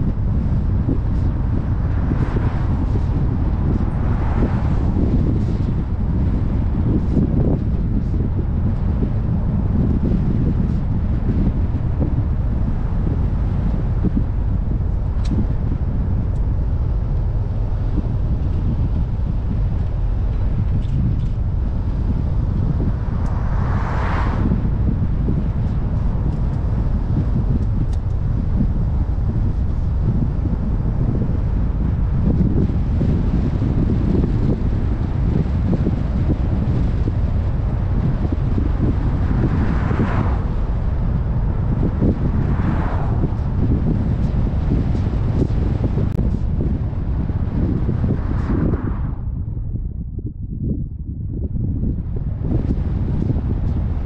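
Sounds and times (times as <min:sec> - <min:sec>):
car driving at speed: 0:00.0 - 0:50.4, 0:51.2 - 0:54.0
passing vehicle whoosh: 0:00.0 - 0:50.4
wind buffeting microphone: 0:00.0 - 0:54.0
car swishing past: 0:22.4 - 0:27.1, 0:38.2 - 0:45.9.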